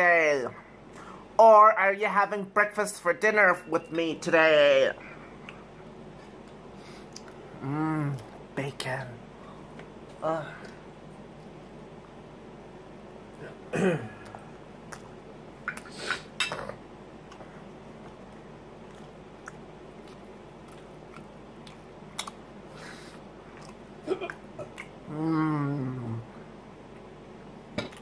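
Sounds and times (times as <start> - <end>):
man chewing and lip smacking: 5.3 - 7.4, 14.2 - 16.0, 17.2 - 25.2
man humming mmm: 7.6 - 8.3, 24.1 - 26.4.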